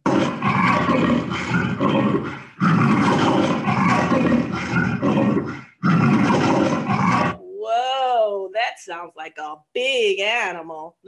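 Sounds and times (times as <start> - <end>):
leopard snarling: 0.0 - 7.4.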